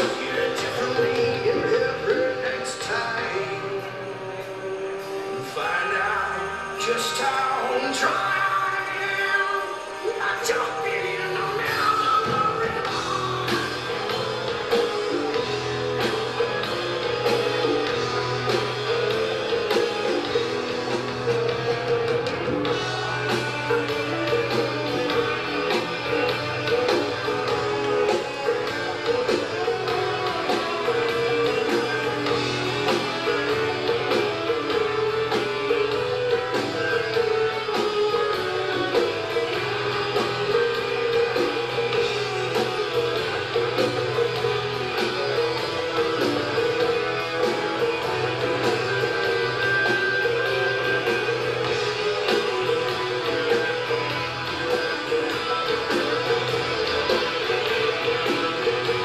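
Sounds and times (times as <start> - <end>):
bass guitar: 0.0 - 59.0
drum kit: 0.0 - 59.0
electric guitars: 0.0 - 59.0.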